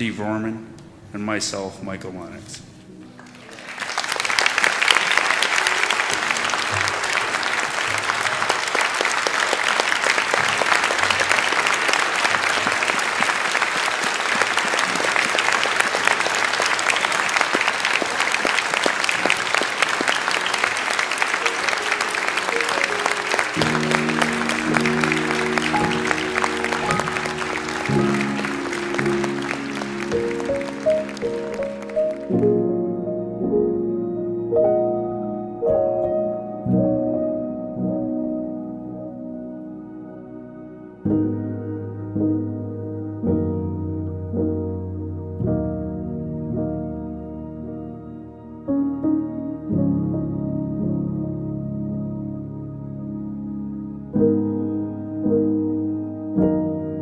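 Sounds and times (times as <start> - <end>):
audience applauding: 3.2 - 32.5
instrumental music with held notes: 18.7 - 57.0.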